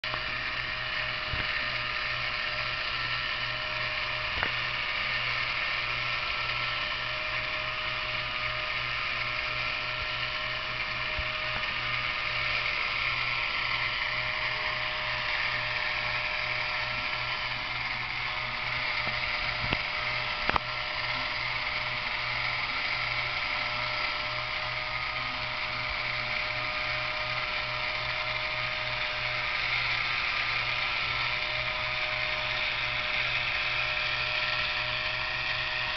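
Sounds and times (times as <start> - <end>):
gearbox whirring and chatter: 0.0 - 35.9
sharp clicks: 19.0 - 20.7.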